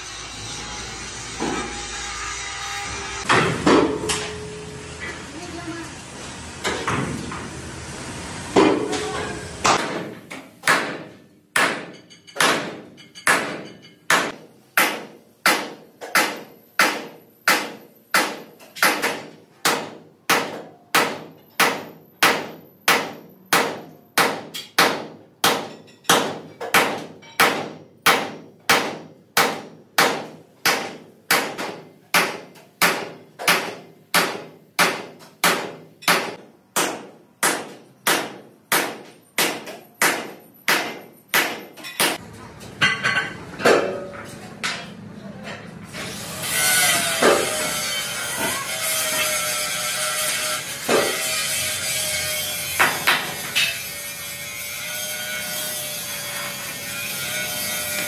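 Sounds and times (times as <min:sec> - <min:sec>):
sledgehammer striking chisel on steel: 0:08.6 - 0:42.2, 0:47.0 - 0:47.8, 0:50.3 - 0:54.0.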